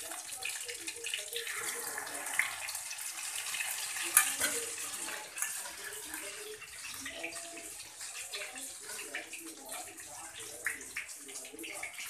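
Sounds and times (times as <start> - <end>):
chicken sizzling in oil: 0.0 - 12.0
metallic utensil clink: 4.1 - 4.9.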